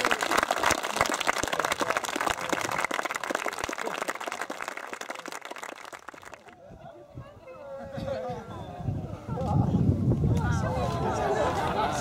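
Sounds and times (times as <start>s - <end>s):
guests applauding: 0.0s - 6.6s.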